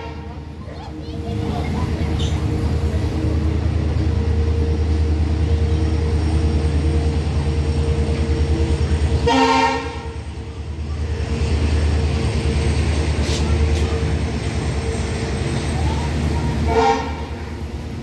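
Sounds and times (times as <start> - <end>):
train horn toot: 0.0 - 0.4, 9.1 - 10.2, 16.6 - 17.6
goods train rumbling past: 0.0 - 18.0
wheels clattering on rails: 0.5 - 9.3, 10.0 - 16.7.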